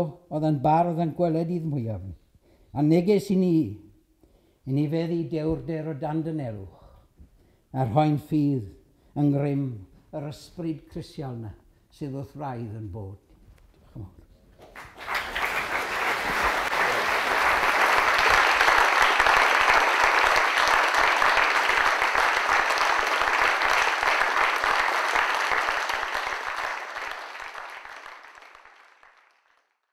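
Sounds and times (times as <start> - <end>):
audience applauding: 14.6 - 29.9.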